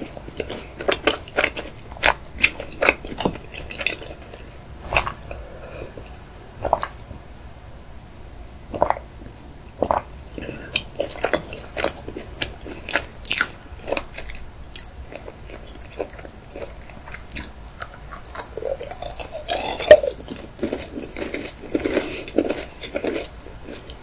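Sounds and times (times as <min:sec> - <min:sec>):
crunching chocolate: 0:00.0 - 0:06.0, 0:09.8 - 0:24.0
wet mouth clicks and chewing: 0:09.8 - 0:24.0
chocolate cracking: 0:13.3 - 0:23.4.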